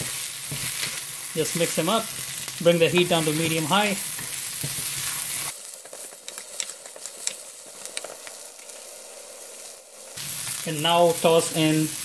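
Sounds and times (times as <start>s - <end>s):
spatula stirring in wok: 0.0s - 9.0s
vegetables sizzling in oil: 0.0s - 12.0s.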